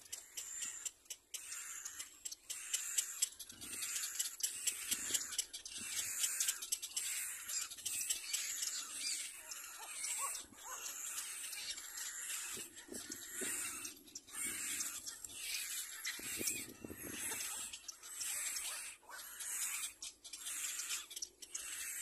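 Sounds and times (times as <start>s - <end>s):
patter of small clicks: 0.0s - 7.0s
bird chick breathy calls: 2.6s - 22.0s.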